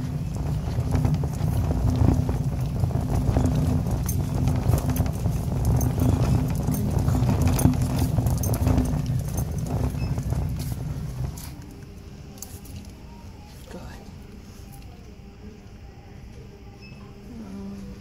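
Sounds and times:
shopping cart rolling and rattling: 0.0s - 13.0s.

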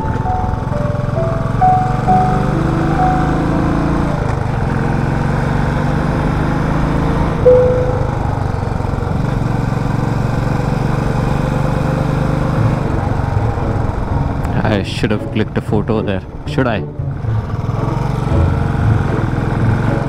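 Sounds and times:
motorcycle engine running: 0.0s - 14.4s
short loud tone: 7.5s - 8.5s.

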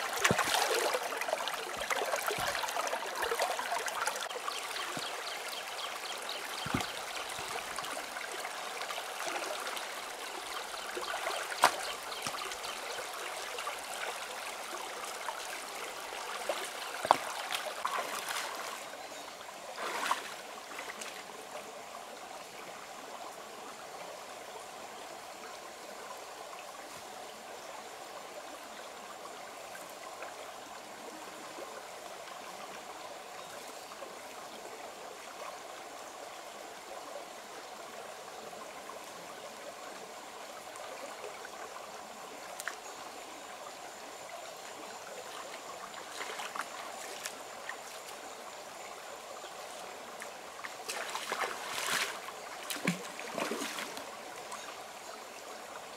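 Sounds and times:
rocky stream trickling: 0.0s - 23.2s, 36.9s - 55.9s.

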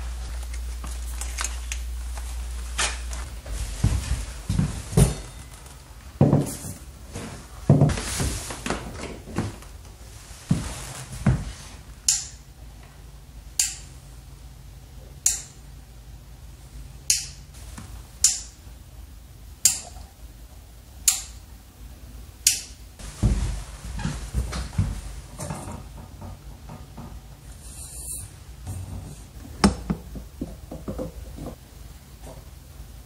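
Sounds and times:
handling noises: 0.0s - 11.9s.

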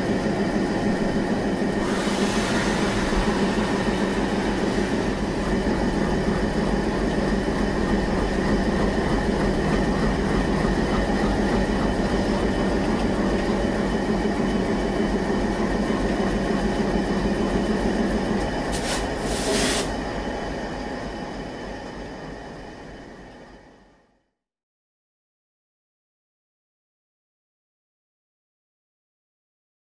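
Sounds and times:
burst of hiss: 1.8s - 5.1s, 18.7s - 20.0s.

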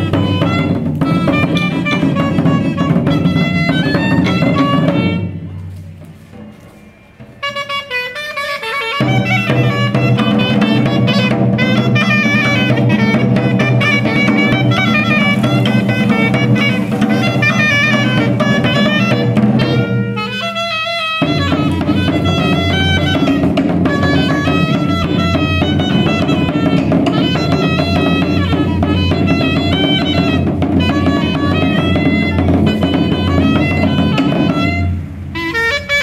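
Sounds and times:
clarinets playing melody: 0.0s - 5.7s, 7.0s - 36.0s
large drums beating: 0.0s - 6.5s, 9.0s - 20.6s, 21.2s - 35.3s.

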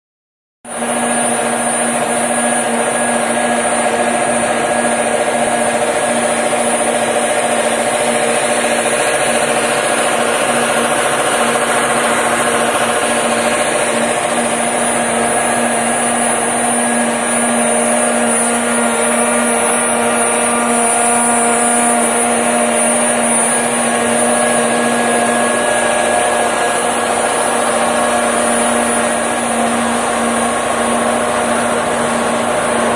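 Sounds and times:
low machine hum: 0.7s - 32.9s
welding arc buzzing hiss: 0.8s - 32.9s.

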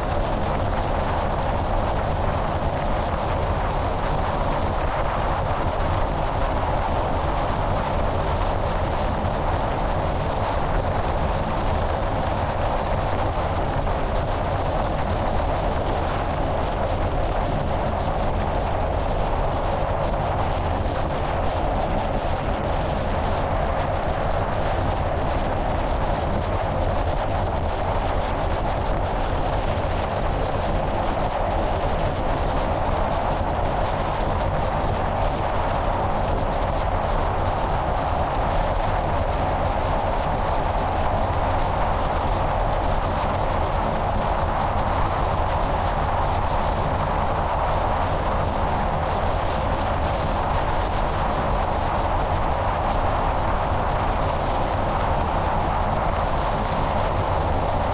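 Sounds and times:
wind buffeting microphone: 0.0s - 57.9s.

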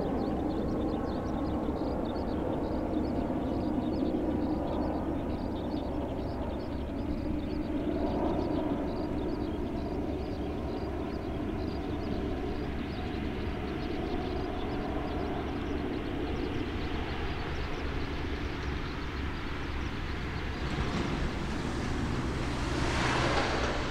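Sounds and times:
distant jet engine rumble: 0.0s - 23.9s.

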